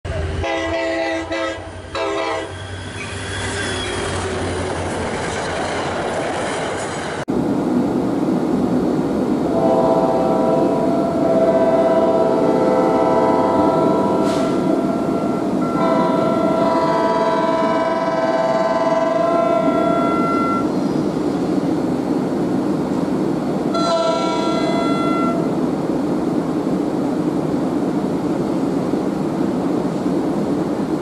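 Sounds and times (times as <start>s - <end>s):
train rumbling: 0.0s - 31.0s
train horn: 0.1s - 2.6s, 9.5s - 20.6s, 23.7s - 25.5s.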